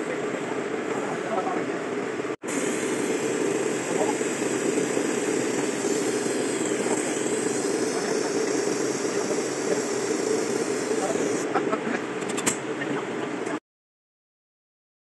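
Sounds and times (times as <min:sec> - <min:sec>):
laser engraver humming with hiss: 0:02.4 - 0:11.8.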